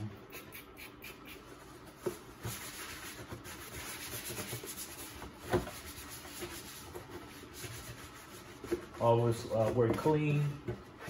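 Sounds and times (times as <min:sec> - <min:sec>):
towel rubbing on plastic: 0:01.5 - 0:09.8.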